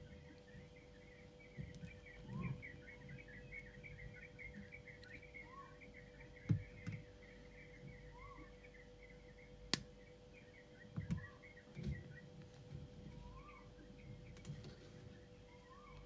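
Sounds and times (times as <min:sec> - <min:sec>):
high chirping: 0:00.0 - 0:12.4
faint hum: 0:00.0 - 0:16.0.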